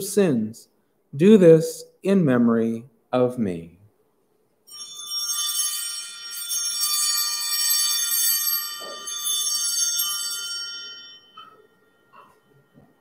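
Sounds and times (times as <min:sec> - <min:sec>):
small bells jingling: 0:04.6 - 0:13.0.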